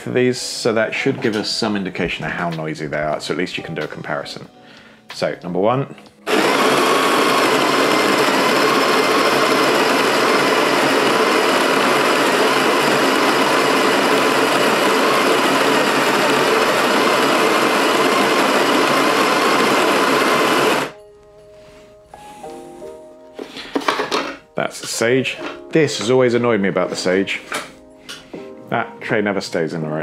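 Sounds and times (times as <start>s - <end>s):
coffee grinder grinding beans: 6.3s - 21.0s.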